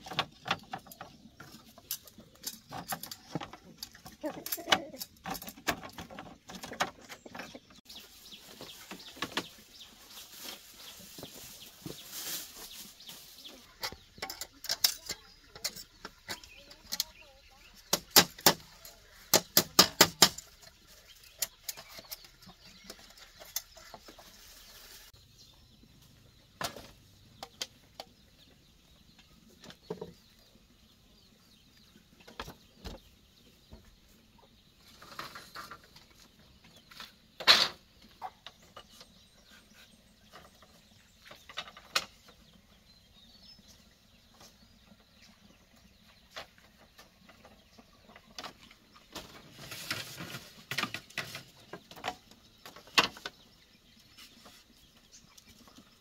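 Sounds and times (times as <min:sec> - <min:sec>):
taps and knocks on bamboo: 0:17.8 - 0:20.7.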